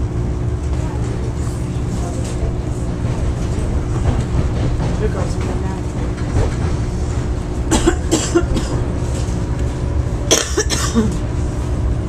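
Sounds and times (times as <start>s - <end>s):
train rumble from inside: 0.0s - 12.0s
person coughing: 7.7s - 8.8s, 10.3s - 11.3s.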